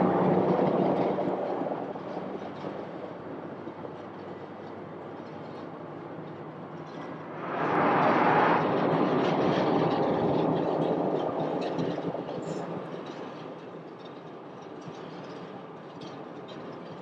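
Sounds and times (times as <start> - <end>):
jet engine rush: 7.1 - 13.0.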